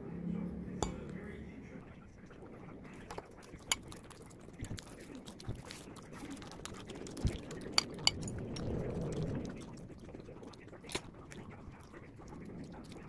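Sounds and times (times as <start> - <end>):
fork clinking on ceramic bowl: 7.8 - 8.3.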